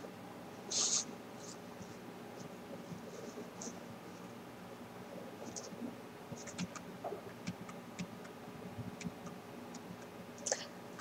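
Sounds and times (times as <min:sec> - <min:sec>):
low steady hum: 0:00.0 - 0:11.0
computer clicks and taps: 0:06.4 - 0:08.4, 0:09.0 - 0:10.1.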